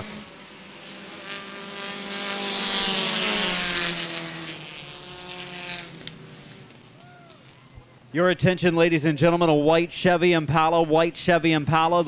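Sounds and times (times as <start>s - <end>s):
race car engine passing: 0.0s - 8.2s.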